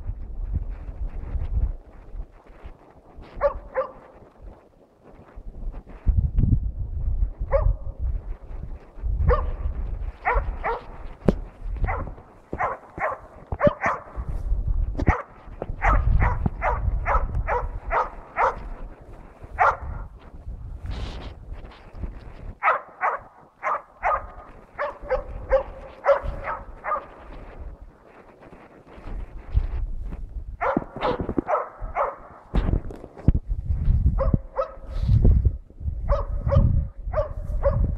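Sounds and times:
dog barking: 3.4s - 4.1s, 7.5s - 8.0s, 9.3s - 9.6s, 10.2s - 11.0s, 11.8s - 14.3s, 15.0s - 18.7s, 19.6s - 20.0s, 22.6s - 27.2s, 30.6s - 32.4s, 34.2s - 35.0s, 36.1s - 37.9s.

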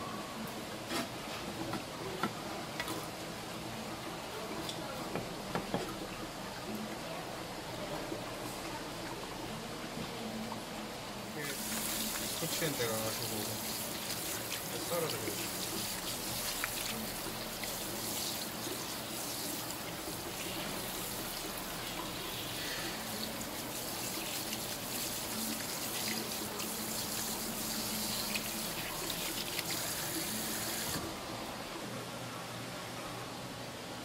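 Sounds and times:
tap water running: 5.1s - 31.3s.

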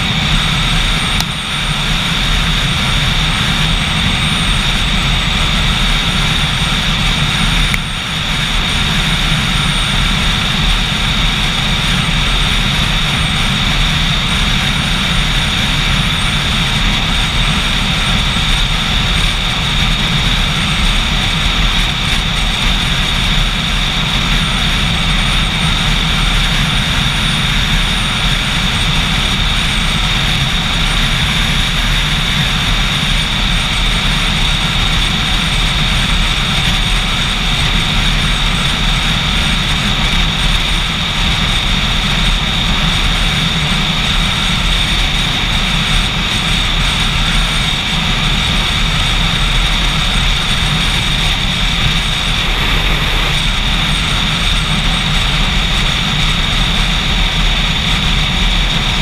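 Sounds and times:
motorcycle engine running: 0.0s - 59.0s
wind rush on microphone: 0.0s - 59.0s.

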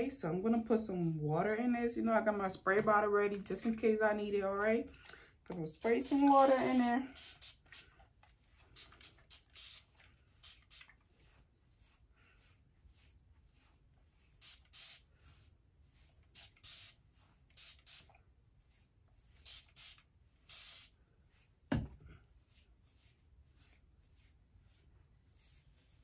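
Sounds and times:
spray bottle spritzing: 5.8s - 11.3s, 14.2s - 15.4s, 16.0s - 18.2s, 19.3s - 21.0s.

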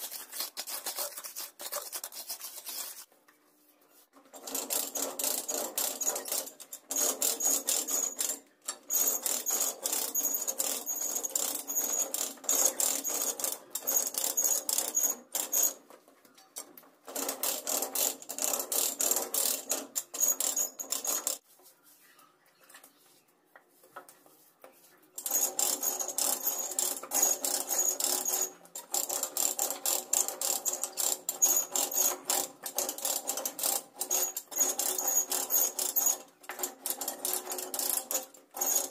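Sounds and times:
trowel scraping wet grit: 0.0s - 3.1s.

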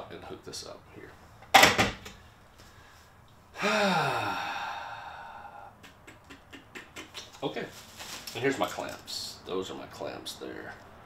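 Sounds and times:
man sighing: 3.5s - 5.8s.

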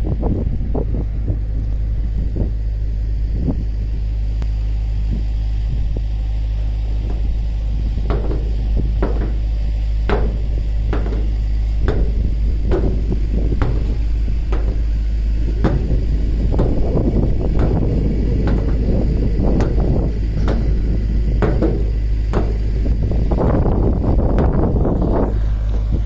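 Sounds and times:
wind buffeting microphone: 0.0s - 26.0s
sharp knocks: 7.0s - 23.3s.

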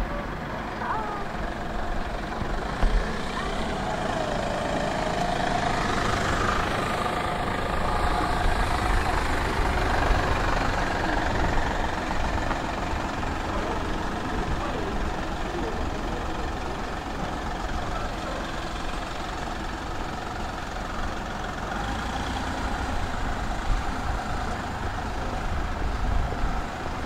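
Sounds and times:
tram wheels rumbling on rails: 0.0s - 27.0s.

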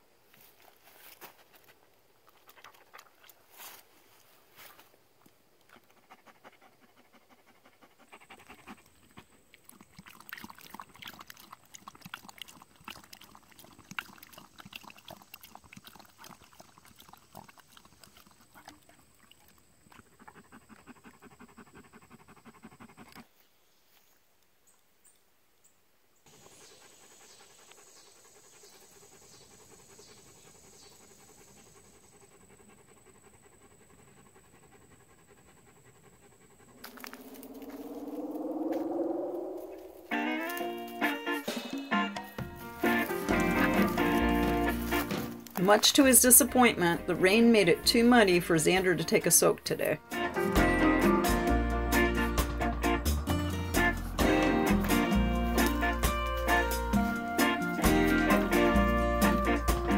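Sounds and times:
dog panting: 5.7s - 23.4s, 26.3s - 38.8s, 42.8s - 49.3s.

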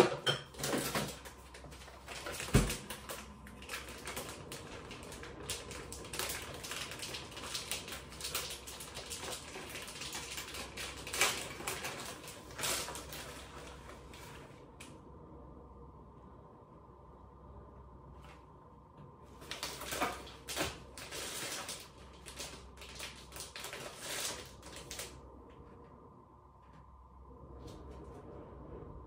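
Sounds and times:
plastic bag crinkling: 0.5s - 14.6s, 19.4s - 25.2s.

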